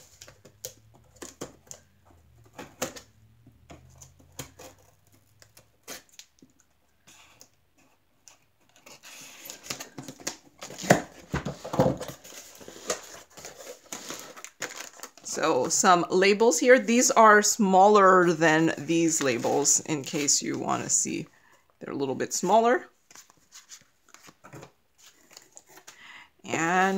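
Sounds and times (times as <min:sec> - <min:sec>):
cardboard rustling: 0:00.0 - 0:17.5, 0:18.1 - 0:21.1, 0:22.4 - 0:26.0.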